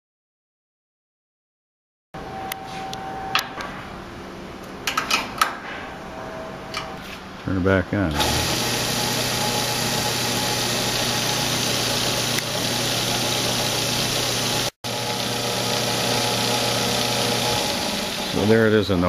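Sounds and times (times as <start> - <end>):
belt sander motor humming: 8.2 - 18.8.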